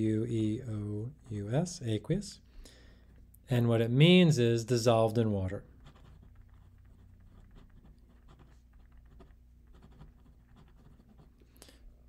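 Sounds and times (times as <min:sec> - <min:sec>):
pen scratching on paper: 0:05.7 - 0:11.4.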